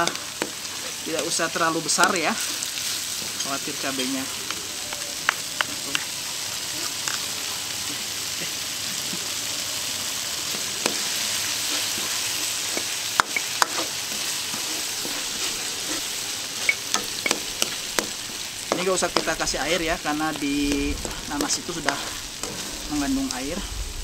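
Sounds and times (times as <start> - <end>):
chilies sizzling in oil: 0.0 - 24.0
spatula scraping wok: 10.4 - 23.7
spatula knocking against wok: 12.8 - 13.9, 16.9 - 19.4.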